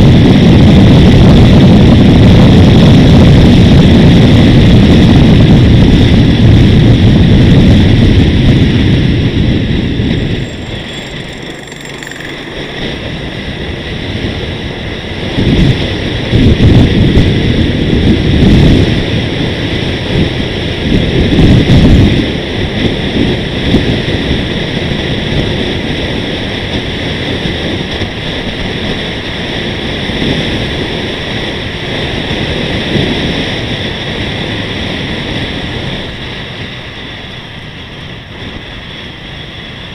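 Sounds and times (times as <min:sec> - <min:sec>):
wind buffeting microphone: 0:00.0 - 0:39.9
steady high whine: 0:09.1 - 0:17.7.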